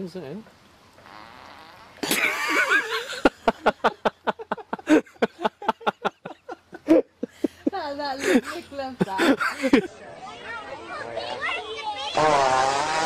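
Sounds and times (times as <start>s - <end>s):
person laughing: 2.0s - 7.4s.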